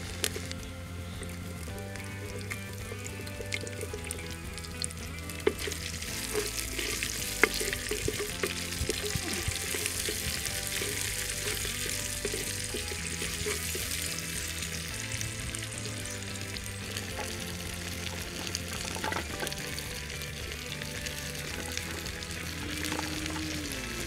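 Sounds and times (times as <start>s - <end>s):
vegetables sizzling in hot oil: 0.0s - 24.0s
wooden spoon scraping pot: 1.6s - 14.8s.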